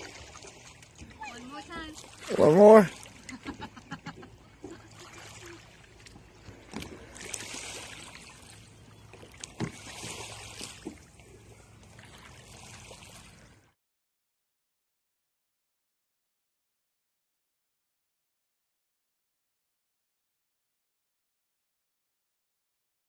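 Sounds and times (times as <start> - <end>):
paddle splashing water: 0.0 - 13.8.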